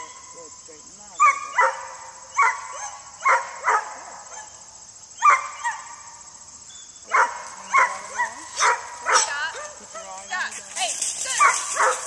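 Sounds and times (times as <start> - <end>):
dog barking: 1.2 - 4.6, 5.2 - 6.0, 7.1 - 10.2, 11.4 - 12.0.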